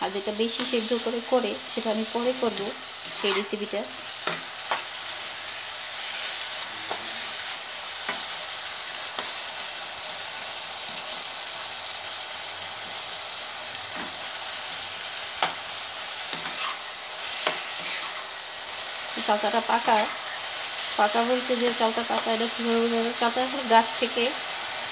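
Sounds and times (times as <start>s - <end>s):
fruit sizzling in oil: 0.0s - 24.9s
spatula scraping pan: 3.0s - 4.9s, 16.2s - 18.4s, 19.2s - 20.9s.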